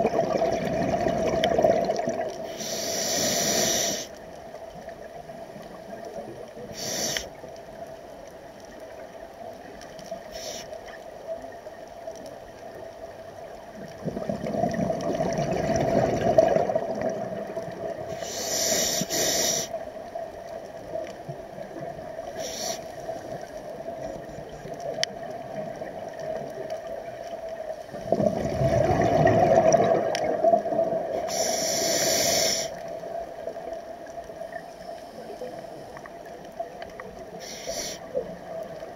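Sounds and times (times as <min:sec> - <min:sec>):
exhaled bubbles rushing underwater: 0:00.0 - 0:02.6, 0:12.7 - 0:18.3, 0:20.7 - 0:31.5
regulator inhalation hiss: 0:02.4 - 0:04.2, 0:06.7 - 0:07.4, 0:10.2 - 0:10.9, 0:18.1 - 0:19.8, 0:22.3 - 0:23.2, 0:31.2 - 0:32.9, 0:37.4 - 0:38.2.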